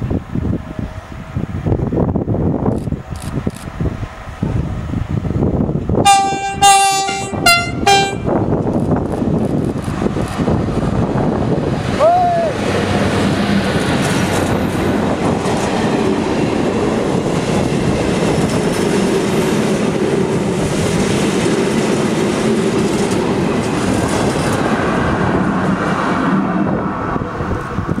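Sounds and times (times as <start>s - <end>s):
diesel locomotive engine hum: 0.0s - 28.0s
train wheels clattering on rails: 12.7s - 26.5s.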